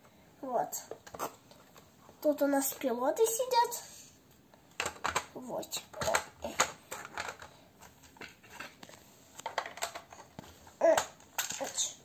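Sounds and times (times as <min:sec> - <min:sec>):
plastic bricks clicking and knocking: 0:04.7 - 0:12.0.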